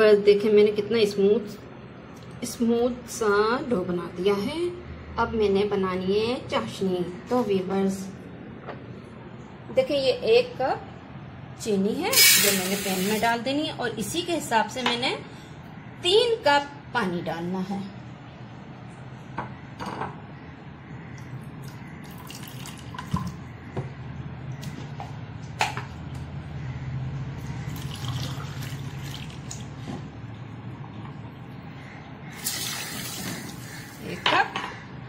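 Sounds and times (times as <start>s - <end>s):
water pouring into metal pan: 27.7s - 29.6s, 32.4s - 33.6s.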